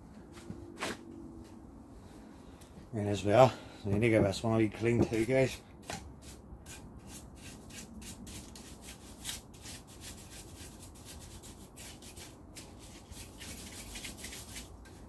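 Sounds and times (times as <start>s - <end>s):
brush scrubbing wood: 6.2s - 15.0s.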